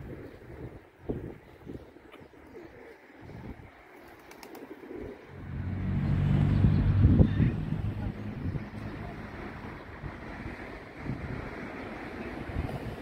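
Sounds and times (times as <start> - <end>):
pigeons cooing: 0.0 - 10.1
steady low hum: 5.3 - 11.7.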